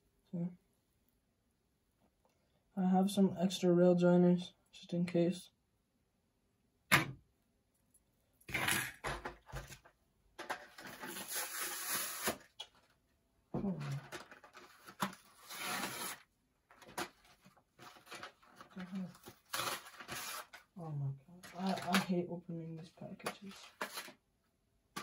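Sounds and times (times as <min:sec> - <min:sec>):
plastic packaging crinkling and rustling: 0:09.5 - 0:12.9, 0:13.7 - 0:20.8, 0:21.4 - 0:22.1, 0:23.2 - 0:24.2.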